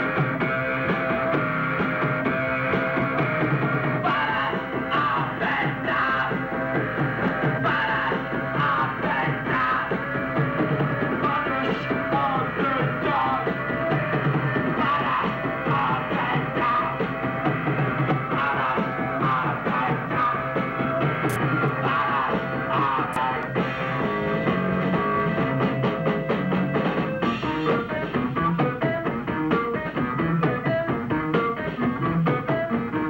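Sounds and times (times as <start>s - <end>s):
punk rock band playing: 0.0s - 33.0s
person singing: 4.0s - 6.4s, 7.6s - 10.1s, 21.3s - 23.7s.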